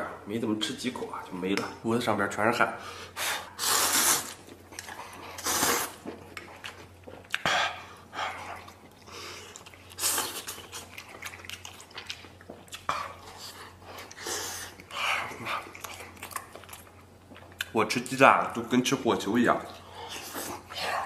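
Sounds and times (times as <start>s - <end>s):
man slurping noodles: 3.6s - 4.4s, 5.4s - 6.0s
chewing: 4.3s - 17.8s.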